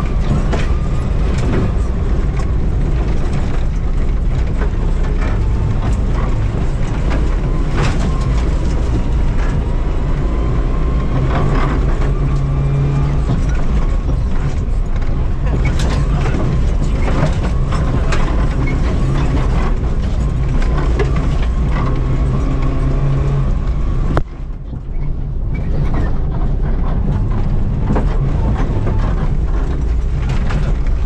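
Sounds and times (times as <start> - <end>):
car engine revving hard: 0.0 - 24.2
gravel clattering against car body: 11.1 - 31.0.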